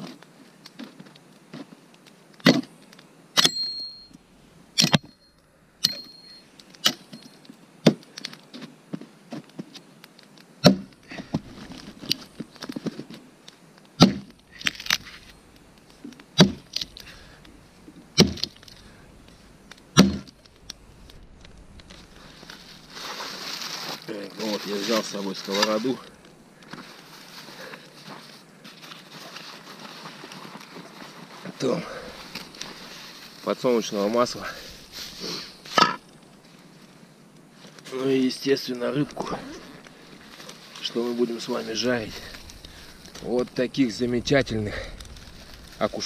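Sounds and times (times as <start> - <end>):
axe chopping wood: 10.6 - 10.9, 14.0 - 14.3, 16.4 - 16.8, 18.2 - 18.5, 20.0 - 20.3.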